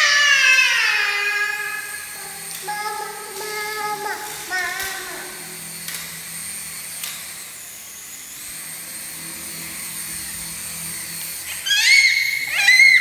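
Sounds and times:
high-pitched squeals: 0.0 - 5.7, 11.4 - 13.0
toy helicopter rotor motor whining: 0.0 - 13.0.

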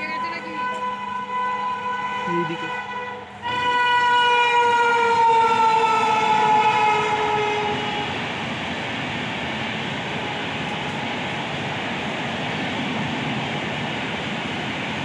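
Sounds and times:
train horn blast: 0.0 - 8.3
train wheels rumbling on track: 0.0 - 15.0.

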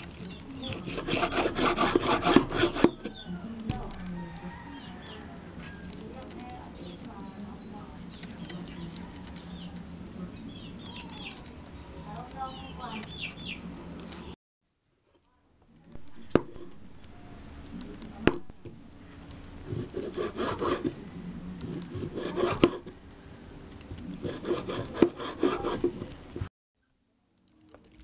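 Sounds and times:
knife slicing raw meat: 0.7 - 3.2.

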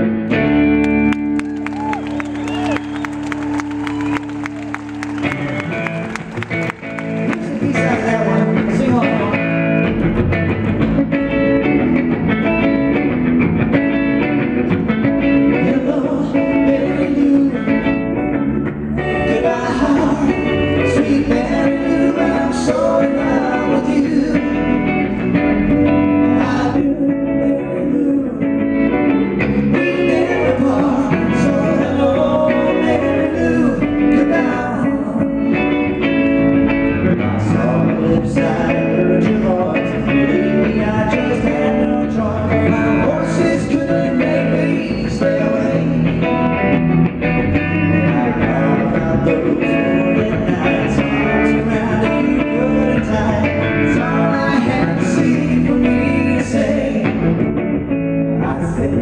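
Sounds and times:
bass guitar: 0.0 - 59.0
electric guitar: 0.0 - 59.0
two men singing together: 7.2 - 9.6, 15.5 - 18.0, 19.0 - 24.9, 26.2 - 28.6, 29.5 - 35.7, 37.3 - 46.4, 47.8 - 57.4.

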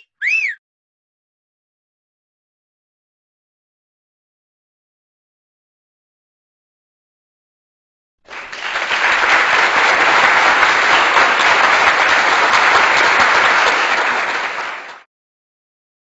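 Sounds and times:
crowd clapping: 8.2 - 15.1.

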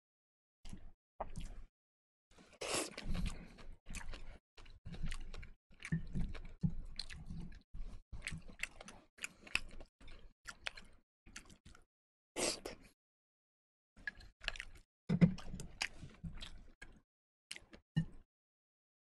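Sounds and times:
person chewing: 0.7 - 1.7, 2.7 - 11.8, 14.0 - 17.8.

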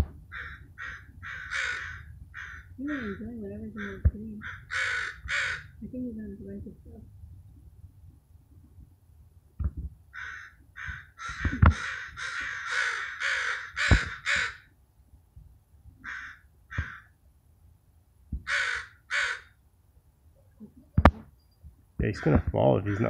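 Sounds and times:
crows cawing harshly: 0.3 - 5.8, 10.1 - 14.7, 16.0 - 17.2, 18.4 - 19.6, 22.2 - 23.0.

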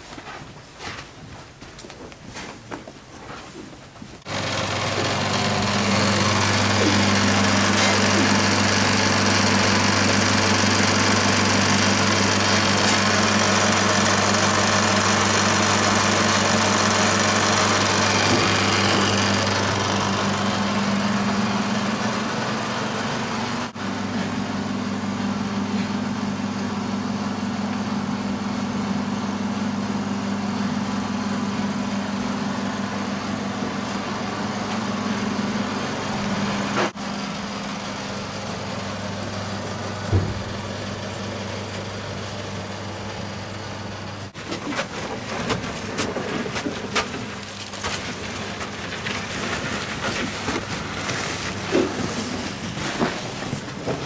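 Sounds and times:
deep machine hum: 4.3 - 44.4.

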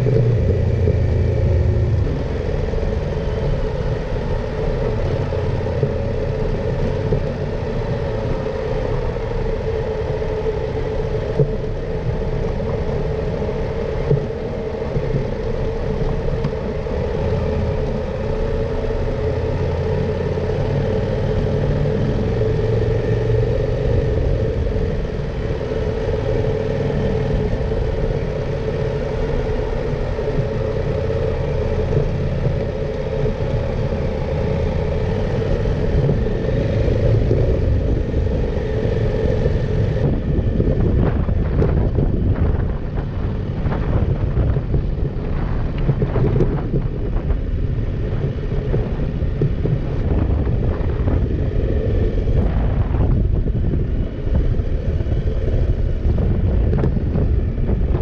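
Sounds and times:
road noise: 0.0 - 58.0.

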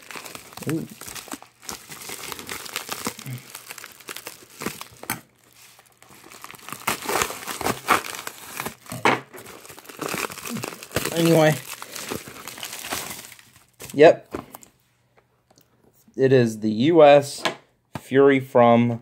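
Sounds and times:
plastic mailer crinkling and rustling: 0.0 - 14.5.

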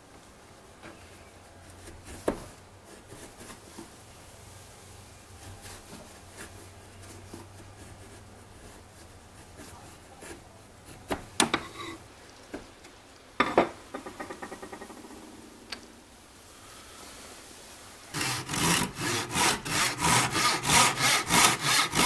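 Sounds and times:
chisel paring wood: 9.6 - 12.0, 18.1 - 22.0.

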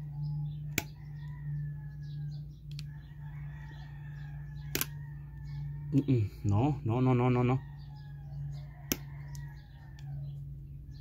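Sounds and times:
birds chirping: 0.0 - 11.0
steady low hum: 0.0 - 11.0
sharp clicks: 4.7 - 5.0.

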